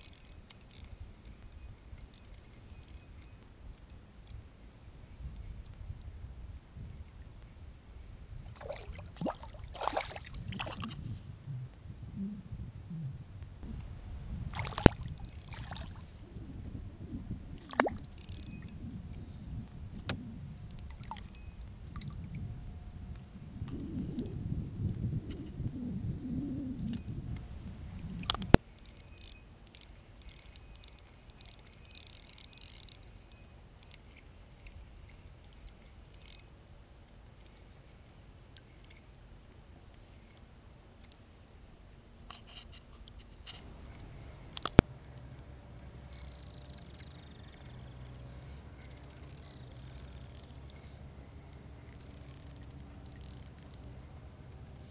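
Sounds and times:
open-water ambience: 0.0 - 54.9
wind on microphone: 4.4 - 28.6.

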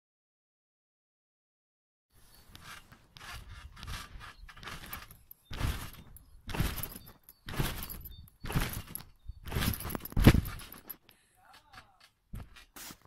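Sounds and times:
trampoline mat thudding: 4.7 - 10.8.

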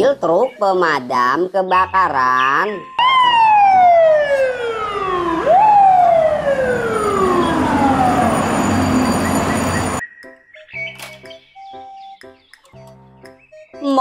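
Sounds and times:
fire truck siren wailing: 3.0 - 10.0.

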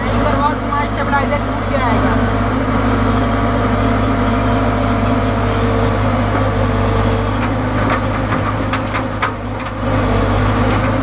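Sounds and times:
diesel engine running: 0.0 - 11.0
short knocks: 7.4 - 10.0.

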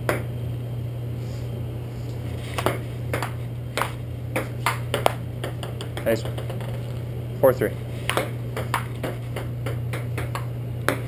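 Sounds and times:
low hum: 0.0 - 11.0
table tennis ball knocking: 2.6 - 6.8, 8.1 - 11.0.

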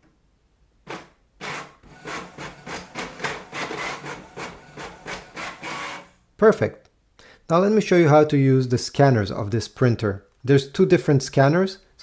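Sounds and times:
inkjet printer printing: 1.5 - 6.1.

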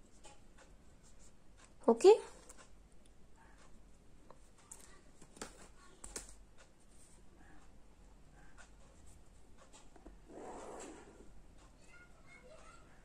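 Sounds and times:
pen scratching on paper: 10.2 - 11.3.

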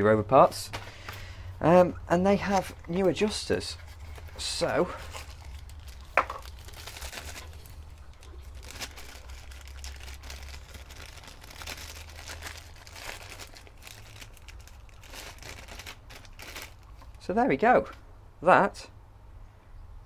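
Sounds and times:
low steady hum: 0.0 - 20.0
plastic bag crinkling: 2.3 - 17.2.

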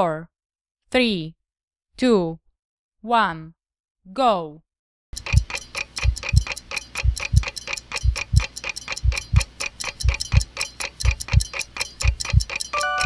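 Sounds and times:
fast clock ticks: 5.2 - 13.0.

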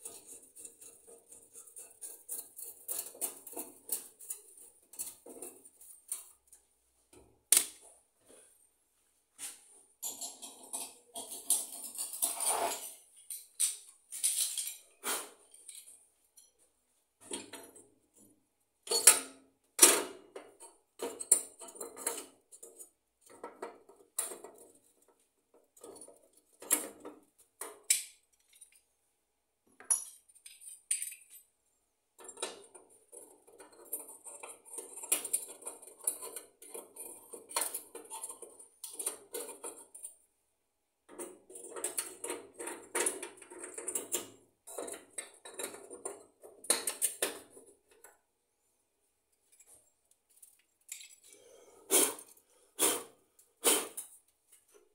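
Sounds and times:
metal stove parts clinking: 10.0 - 16.5.

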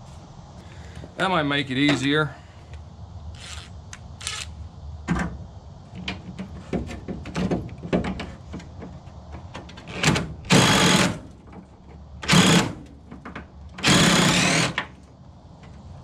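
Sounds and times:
impact driver hammering: 13.8 - 14.8.

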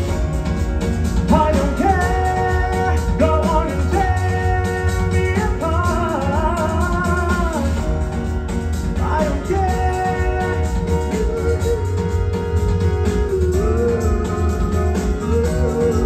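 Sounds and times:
music with heavy bass: 0.0 - 16.0
person singing long notes: 9.0 - 16.0.

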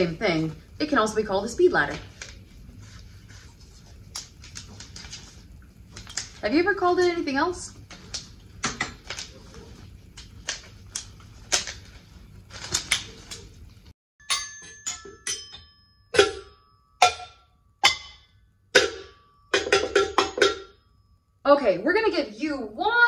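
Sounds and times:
sticks striking plastic cups: 14.2 - 20.8.

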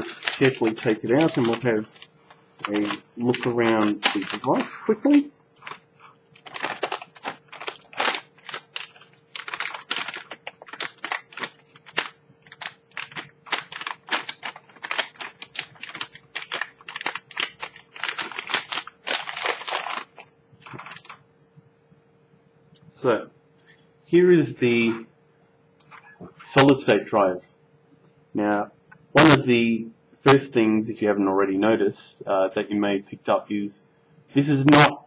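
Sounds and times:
plastic bag crinkling: 0.0 - 21.2.

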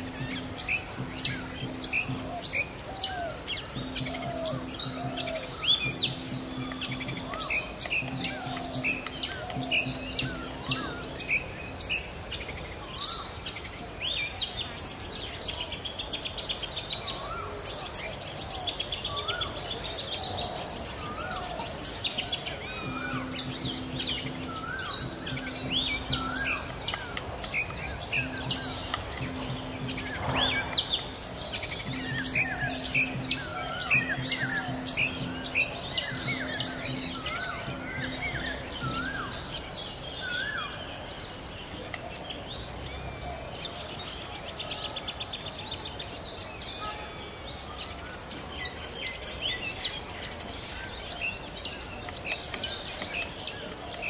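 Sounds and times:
high-pitched hiss: 0.0 - 15.8, 20.2 - 40.8
birds chirping: 0.0 - 54.0
rattling bird call: 22.8 - 39.5.

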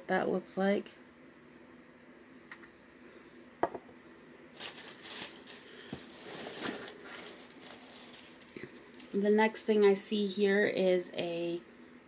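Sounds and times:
packaging rustling and crinkling: 4.5 - 9.2.

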